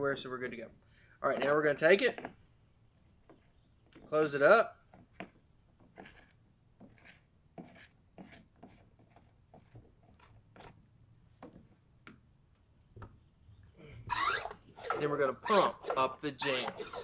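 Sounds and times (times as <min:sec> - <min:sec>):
plastic clicks and scrapes: 0:14.1 - 0:15.2, 0:15.8 - 0:17.0.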